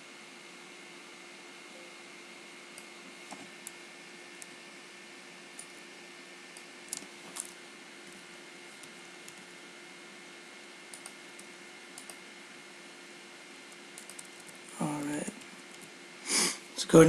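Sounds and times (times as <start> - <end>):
computer mouse clicks: 10.9 - 12.2, 13.7 - 14.6.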